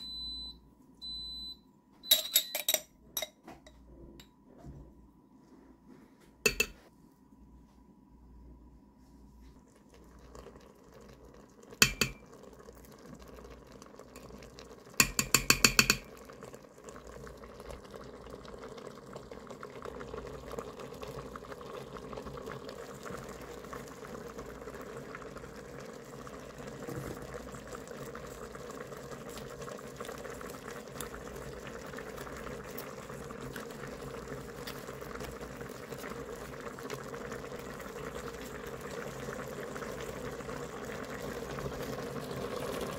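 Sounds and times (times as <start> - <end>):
utensil tapping metal pot rim: 6.5 - 6.8, 11.8 - 12.2, 15.0 - 16.1
liquid bubbling and hissing: 9.0 - 42.9.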